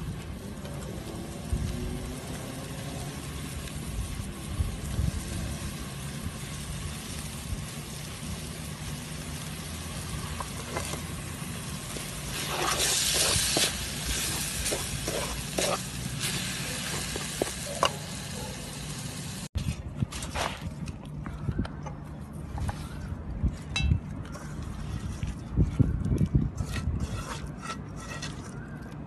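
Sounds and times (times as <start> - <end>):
paste sizzling in a pan: 5.6 - 19.5
wooden spoon scraping a pan: 11.8 - 17.6, 26.5 - 28.7.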